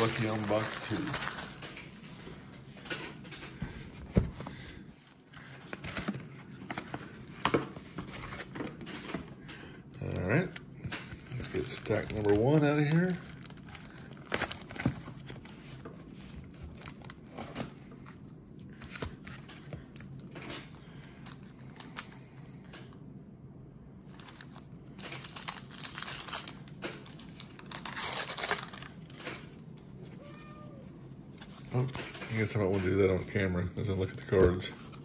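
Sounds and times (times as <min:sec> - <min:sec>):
paper wrappers tearing: 0:00.0 - 0:02.0, 0:11.3 - 0:15.4, 0:24.2 - 0:29.2.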